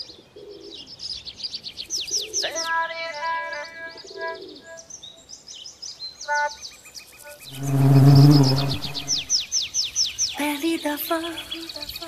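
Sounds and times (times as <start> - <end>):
birds chirping: 0.0 - 12.0
low sustained pitched tone: 7.5 - 9.3.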